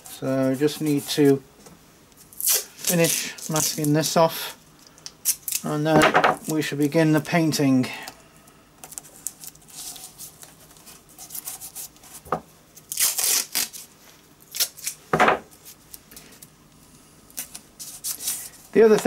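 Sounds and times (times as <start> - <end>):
masking tape tearing and crinkling: 2.3 - 4.1, 5.2 - 5.8, 12.8 - 15.0.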